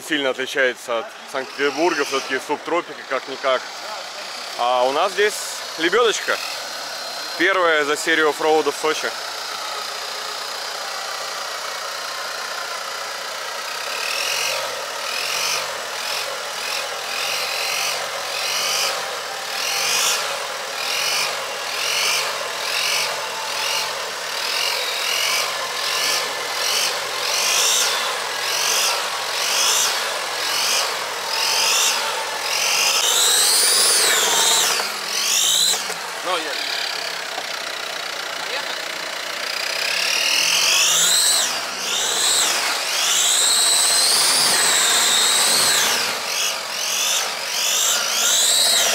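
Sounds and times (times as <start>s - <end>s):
engine idling: 0.0s - 48.9s
winch motor whining: 0.0s - 48.9s.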